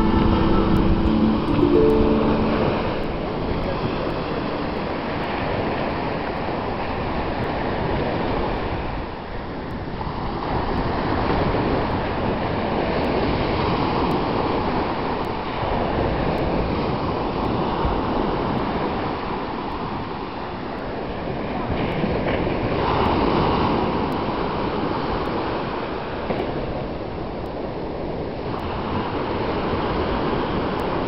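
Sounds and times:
sea waves breaking on beach: 28.4s - 31.0s.

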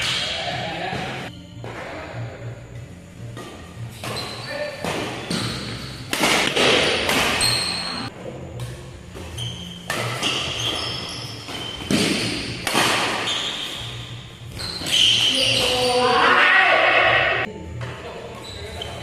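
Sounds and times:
rackets striking shuttlecock: 3.4s - 7.8s, 8.6s - 13.6s
shoes squeaking on court floor: 3.4s - 16.3s, 17.8s - 19.0s.

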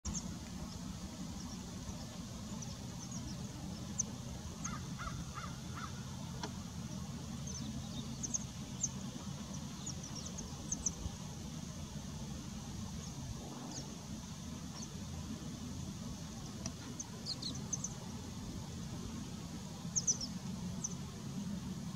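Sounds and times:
pipits giving thin high calls: 0.1s - 6.4s
steady low rumble: 0.1s - 21.9s
bird giving lower calls: 4.6s - 6.1s.

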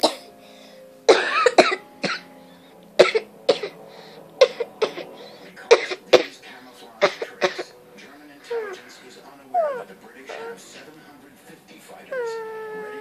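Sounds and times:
girl coughing: 1.1s - 2.3s, 3.0s - 3.8s, 5.7s - 6.3s, 7.0s - 7.7s.

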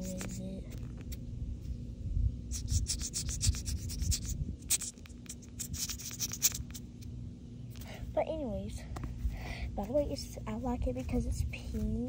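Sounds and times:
scratchy rubbing of toy handling: 0.0s - 1.3s, 2.5s - 7.0s.

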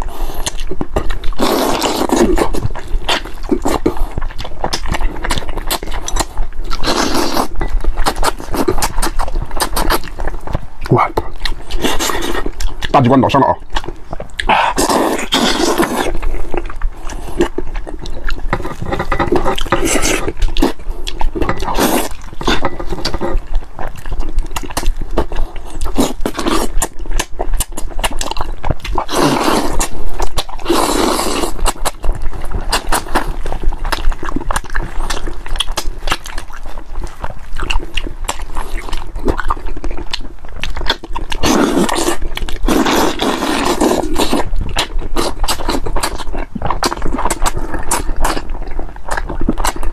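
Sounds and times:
wet chewing and lip smacking: 0.0s - 49.9s
slurping: 1.3s - 10.0s, 14.3s - 23.6s, 29.0s - 33.3s, 41.4s - 46.2s.

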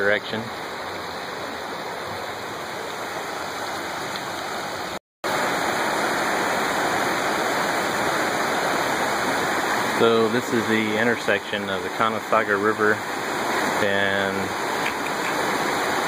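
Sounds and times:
river rushing over boulders: 0.0s - 16.0s.

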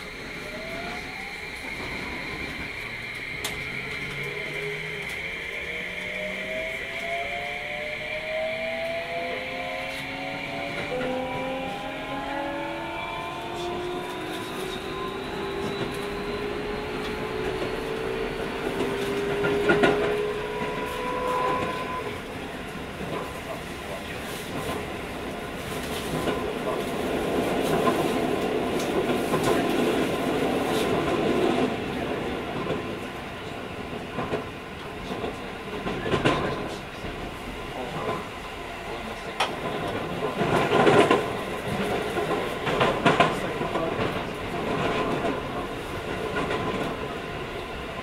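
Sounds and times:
electric train motor whine: 0.0s - 22.3s
train rolling noise: 0.0s - 48.0s.

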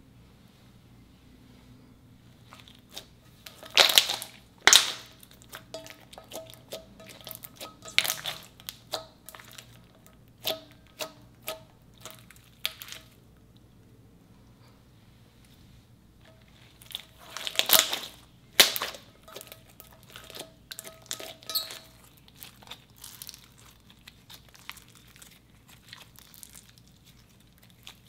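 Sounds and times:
slime popping and crackling: 2.6s - 9.8s, 16.7s - 28.0s.

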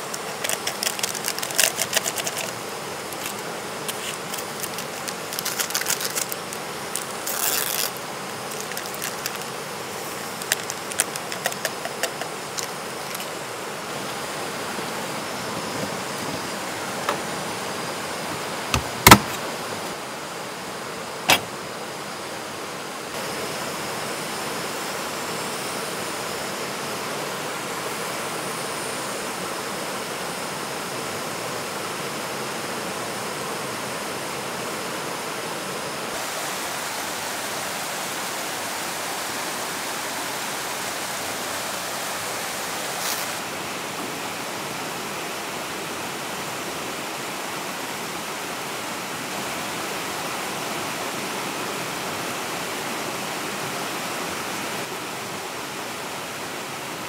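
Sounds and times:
camp cooking gear clattering: 0.0s - 9.5s, 10.1s - 13.4s, 18.8s - 19.4s
stream rushing over rocks: 0.0s - 57.0s.

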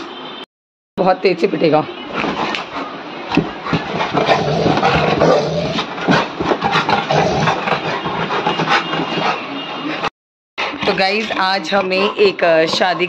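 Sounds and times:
dog growling: 3.5s - 13.0s.

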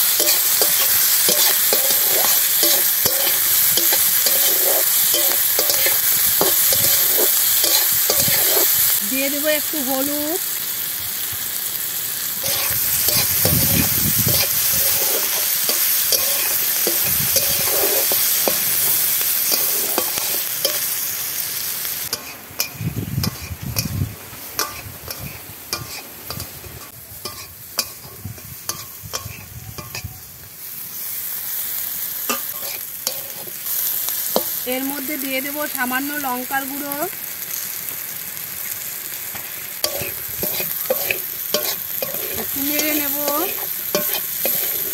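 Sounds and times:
vegetables sizzling in oil: 0.0s - 44.9s
metal spatula scraping pan: 0.1s - 8.9s, 12.4s - 20.9s, 24.6s - 30.1s, 32.3s - 33.6s, 39.9s - 44.9s.

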